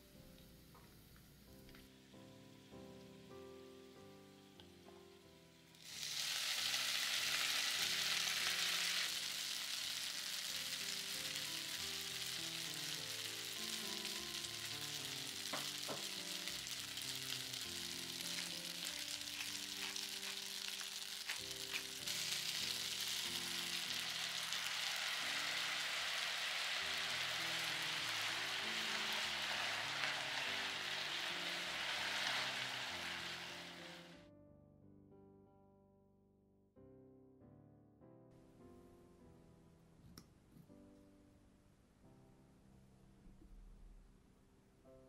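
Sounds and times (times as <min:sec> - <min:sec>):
food sizzling in hot oil: 0:05.7 - 0:34.2.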